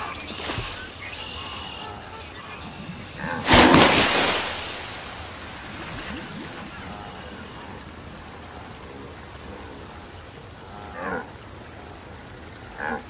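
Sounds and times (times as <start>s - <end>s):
background noise: 0.0s - 13.0s
wildebeest grunt: 10.6s - 12.0s.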